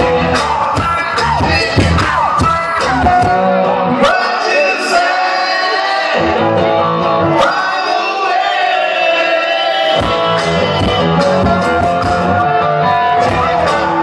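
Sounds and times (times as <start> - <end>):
bass: 0.0 - 4.4, 6.1 - 7.6, 9.9 - 14.0
amplified guitar: 0.0 - 8.2, 9.7 - 14.0
man singing: 0.3 - 8.6.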